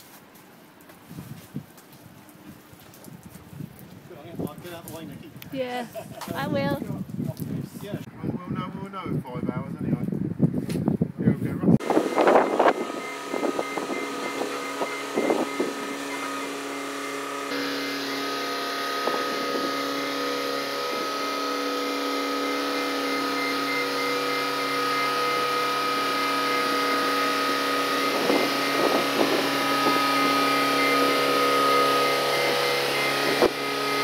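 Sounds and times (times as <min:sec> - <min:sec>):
boat hoist engine drone with whine: 0:11.8 - 0:34.0.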